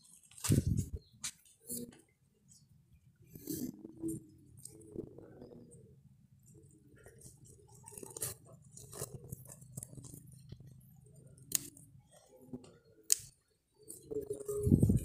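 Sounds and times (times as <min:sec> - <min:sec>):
leafy stems rustling: 0:00.0 - 0:01.9
scissors snipping stems: 0:11.4 - 0:11.8, 0:13.1 - 0:13.3.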